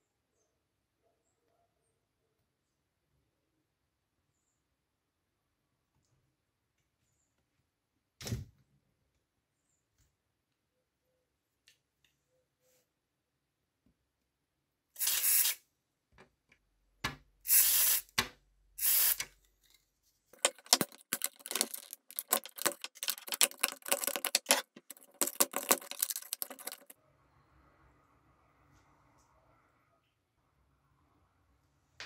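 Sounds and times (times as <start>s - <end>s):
spray hissing: 15.0s - 15.6s, 17.5s - 18.1s, 18.8s - 19.2s
scratchy scrubbing: 20.4s - 27.0s.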